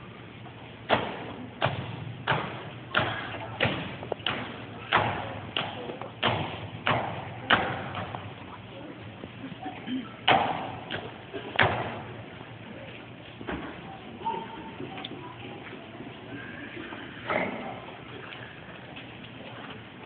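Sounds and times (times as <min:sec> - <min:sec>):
sharp bangs echoing in hall: 0:00.8 - 0:08.4, 0:10.2 - 0:12.3.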